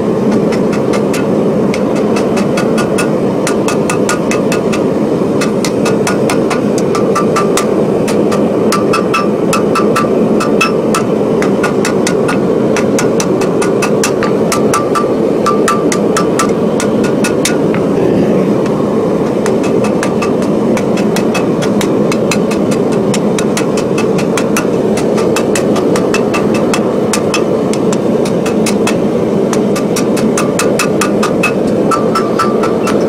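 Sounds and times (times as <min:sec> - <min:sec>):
loud steady rushing noise: 0:00.0 - 0:33.0
hammer striking hot steel on anvil: 0:00.3 - 0:18.0, 0:18.6 - 0:33.0.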